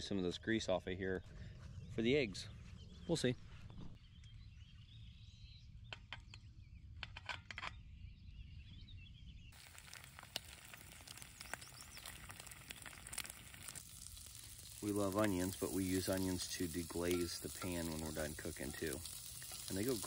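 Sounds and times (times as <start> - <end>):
faint crackles: 9.6 - 20.0
sausage sizzling in a pan: 9.6 - 20.0.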